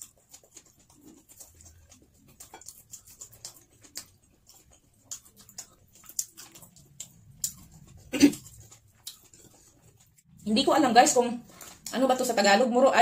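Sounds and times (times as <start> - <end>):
lip smacks: 0.0 - 10.3
person chewing food: 0.0 - 12.0.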